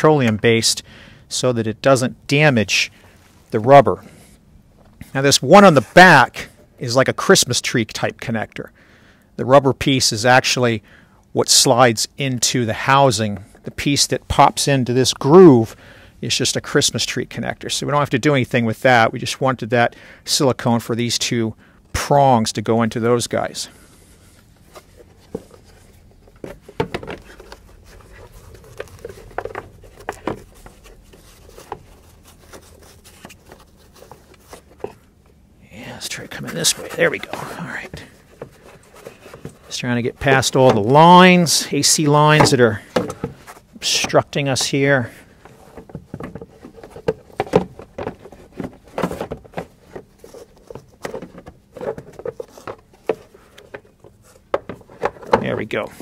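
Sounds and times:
plastic clicking and scraping: 24.8s - 35.4s, 45.3s - 56.0s.

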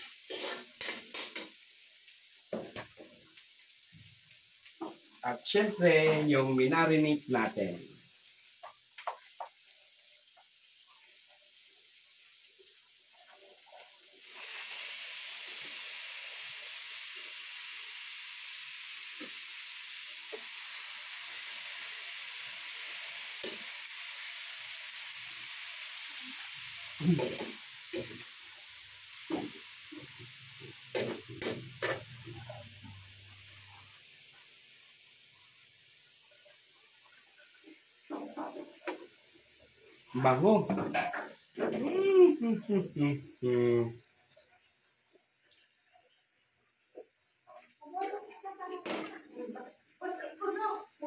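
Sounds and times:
meat sizzling in a wok: 0.0s - 51.0s
metal spatula scraping a wok: 0.2s - 1.4s.

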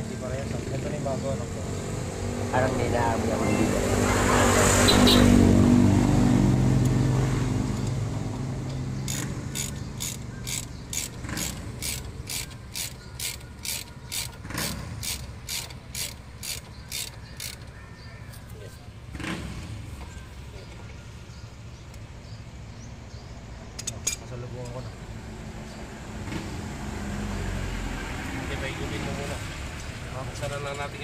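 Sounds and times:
socket ratchet clicking: 9.1s - 17.7s.

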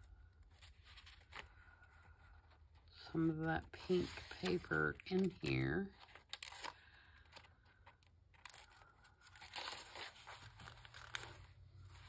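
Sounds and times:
paper pages rustling: 0.2s - 12.0s.

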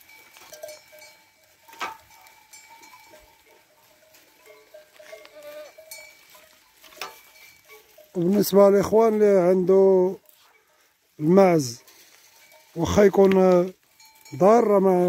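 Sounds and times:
goat bells clinking: 0.0s - 15.0s
faint goat bleat: 5.2s - 5.8s.

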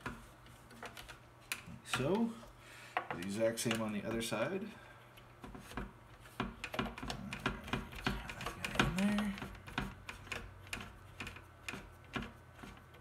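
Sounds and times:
person humming: 7.1s - 9.5s.

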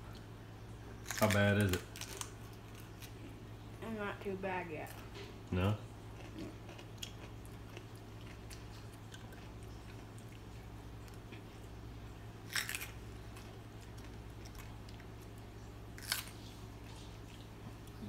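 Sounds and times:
crisp crunches: 1.0s - 3.2s, 12.5s - 13.0s
person chewing pepper: 1.0s - 3.4s, 6.1s - 11.8s, 12.4s - 15.4s, 16.0s - 18.0s.

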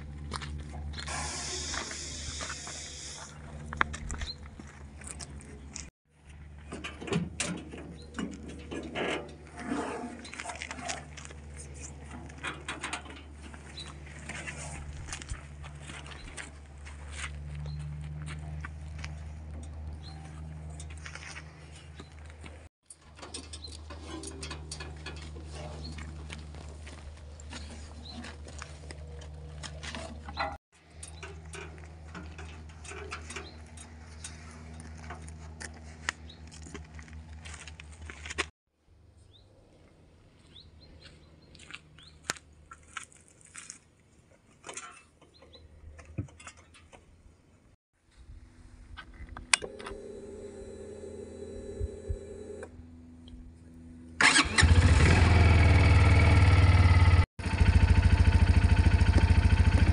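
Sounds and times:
engine idling: 54.2s - 59.9s.

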